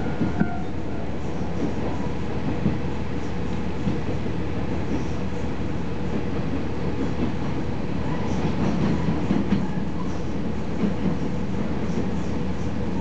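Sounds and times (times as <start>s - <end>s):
railcar engine and wheels rumbling: 0.0s - 13.0s.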